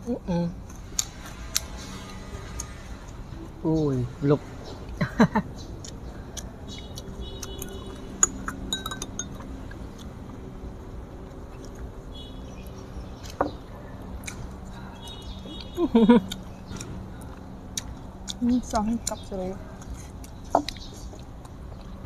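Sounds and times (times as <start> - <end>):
chopsticks clinking on ceramic plate: 8.2 - 9.5.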